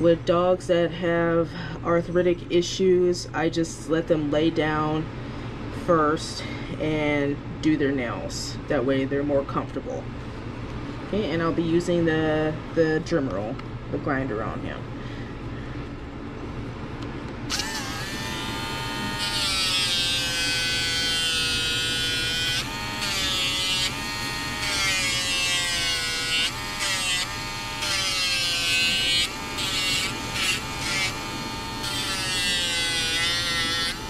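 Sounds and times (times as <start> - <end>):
nail grinder whining: 17.5 - 34.0.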